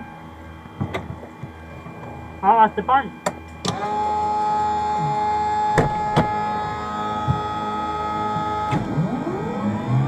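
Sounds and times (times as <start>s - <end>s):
aircraft engine starter whine: 3.2s - 10.0s.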